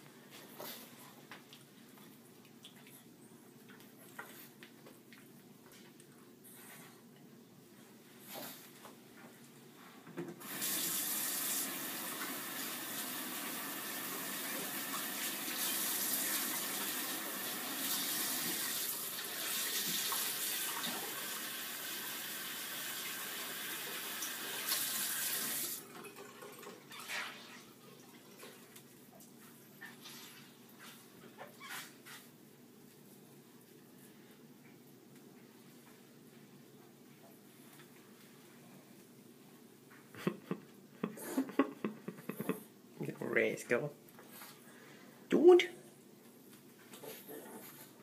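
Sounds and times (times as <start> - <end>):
faucet running water: 10.4 - 28.7.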